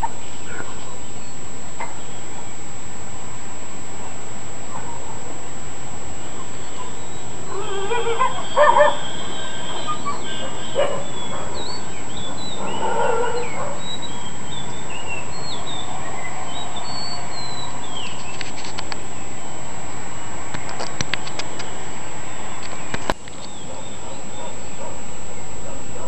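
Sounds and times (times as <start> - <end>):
small birds chirping: 0.0 - 26.0
dogs barking and yelping: 4.6 - 5.4, 6.3 - 18.1, 23.3 - 26.0.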